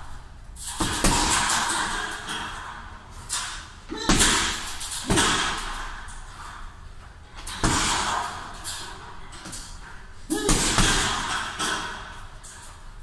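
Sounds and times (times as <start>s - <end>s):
punching bag thuds: 10.4s - 11.5s.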